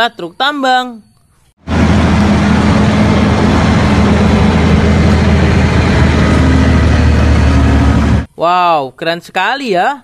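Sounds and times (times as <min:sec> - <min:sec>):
truck diesel engine running: 0:01.6 - 0:08.3.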